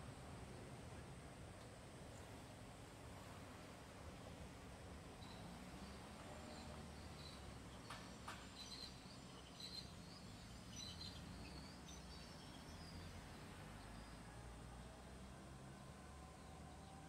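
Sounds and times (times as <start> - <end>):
faint high chirps: 5.2 - 7.5.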